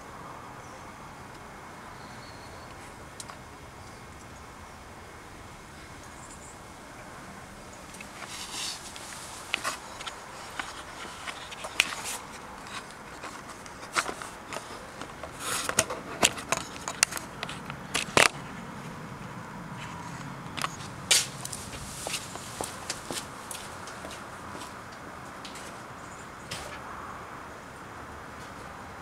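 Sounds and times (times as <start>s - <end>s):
faint steady hum: 0.0s - 29.0s
phone handling clicks and scrapes: 8.0s - 18.5s, 19.8s - 22.9s.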